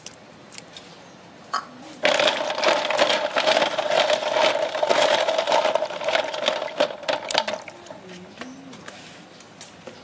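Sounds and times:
shells clattering in metal basin: 2.0s - 7.8s
water sloshing: 2.0s - 8.2s.

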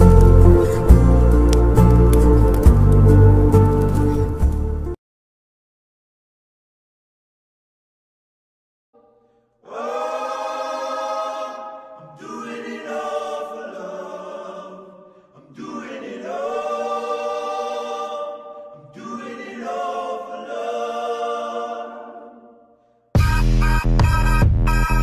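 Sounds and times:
wordless choral singing: 9.6s - 22.8s.

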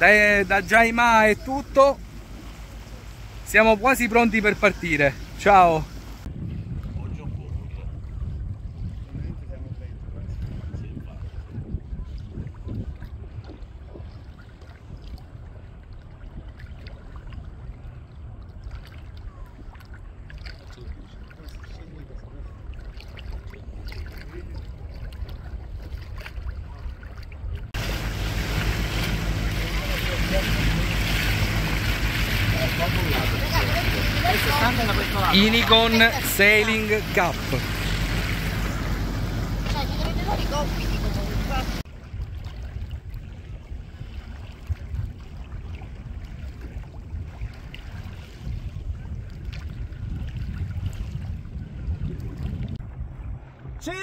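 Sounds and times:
rushing wind: 0.0s - 15.6s, 27.4s - 54.0s
water lapping against boat hull: 0.0s - 53.9s
low rumble: 27.6s - 43.9s.

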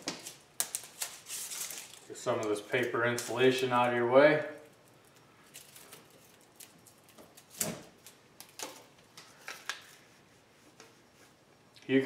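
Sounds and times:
paper crinkling: 0.0s - 3.9s.

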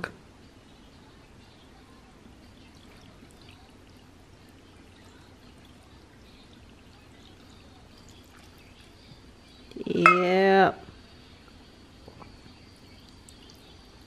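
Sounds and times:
liquid trickling into pot: 2.6s - 10.3s.

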